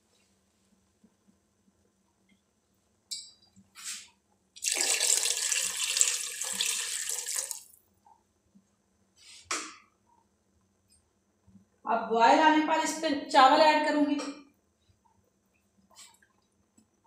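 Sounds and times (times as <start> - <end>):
water pouring into a metal pan: 4.6 - 7.8.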